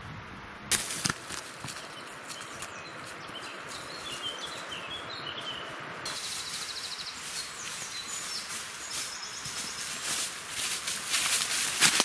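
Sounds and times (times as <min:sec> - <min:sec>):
background hiss: 0:00.0 - 0:12.0
small birds chirping: 0:01.2 - 0:11.8
rapid high bird trill: 0:01.8 - 0:10.2.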